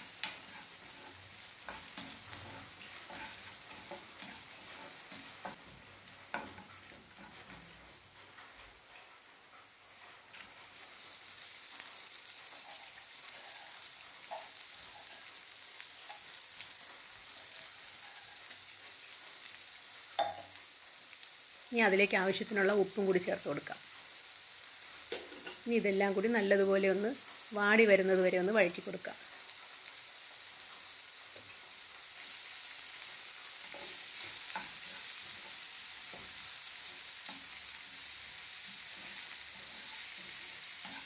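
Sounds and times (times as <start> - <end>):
wooden spoon scraping a pan: 0.0 - 15.4
food sizzling in oil: 0.0 - 41.0.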